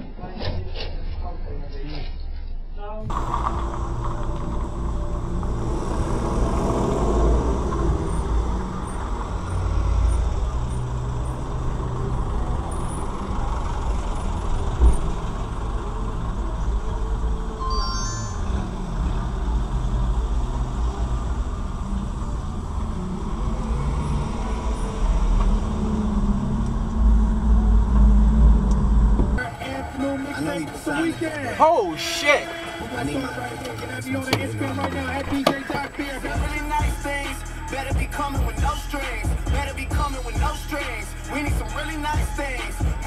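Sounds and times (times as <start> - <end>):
vehicle engines rumbling: 0.0 - 43.0
high chirping tones: 17.6 - 18.8.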